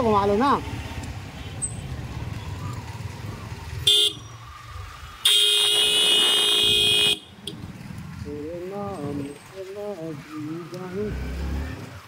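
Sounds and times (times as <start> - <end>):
motorcycle engine rumble: 0.0 - 12.0
vehicle horn honking: 3.9 - 4.2, 5.3 - 7.5.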